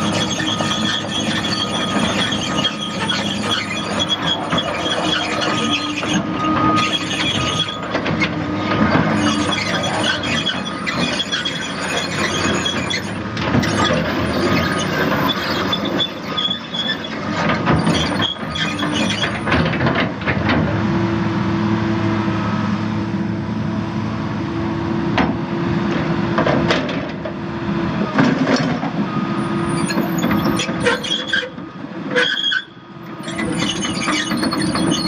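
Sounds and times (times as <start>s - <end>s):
track chains squealing and clanking: 0.0s - 19.8s, 29.4s - 35.0s
diesel engine running: 0.0s - 32.1s.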